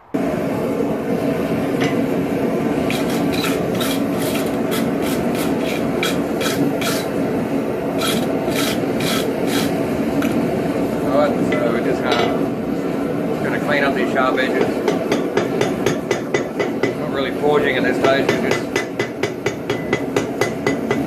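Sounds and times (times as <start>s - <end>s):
angle grinder grinding steel: 2.8s - 7.2s, 8.0s - 10.4s.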